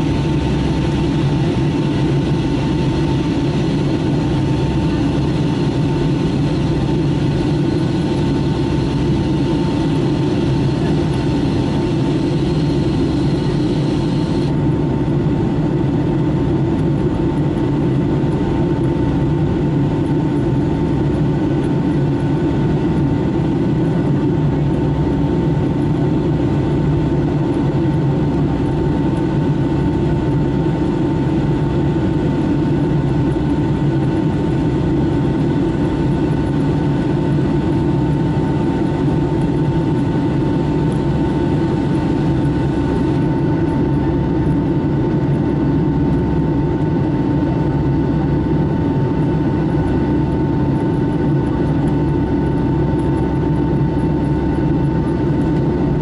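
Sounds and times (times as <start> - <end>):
jet engine and airflow drone: 0.0 - 56.0.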